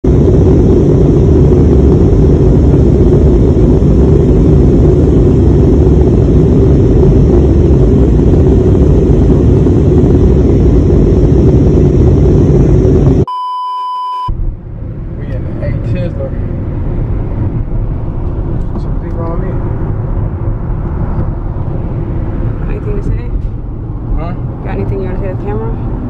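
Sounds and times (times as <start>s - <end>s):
loud steady rumbling: 0.0s - 13.3s, 14.2s - 26.0s
high electronic beep: 13.3s - 14.3s.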